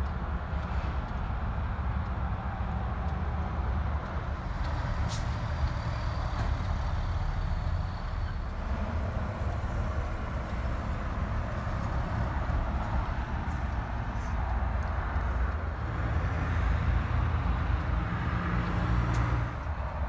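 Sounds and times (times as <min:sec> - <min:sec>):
sharp click: 0:18.6 - 0:19.7.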